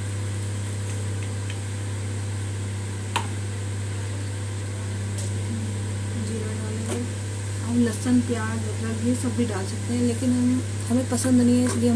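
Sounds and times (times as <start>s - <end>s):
low motor hum: 0.0s - 11.9s.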